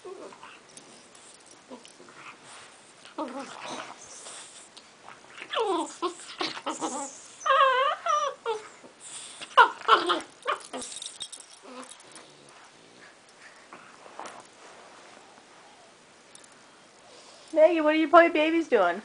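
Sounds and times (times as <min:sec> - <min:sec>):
puppies whining and yelping: 0:05.3 - 0:12.2.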